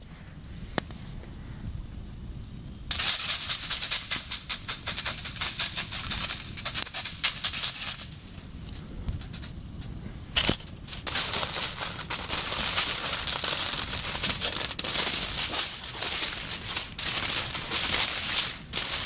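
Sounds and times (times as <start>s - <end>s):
seasoning shaker rattling: 2.9s - 8.5s, 10.4s - 19.0s
grains pattering on foil: 2.9s - 19.0s.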